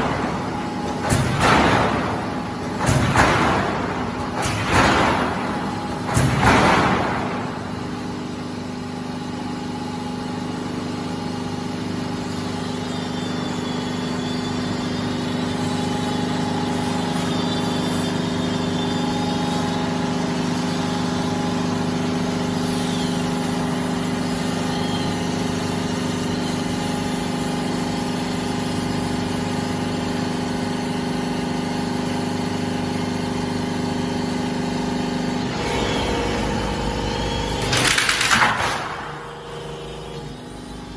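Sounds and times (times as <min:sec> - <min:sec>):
roll forming machine humming: 0:00.0 - 0:40.9
faint high squeal: 0:12.4 - 0:19.4
loud metal clank: 0:36.4 - 0:39.7.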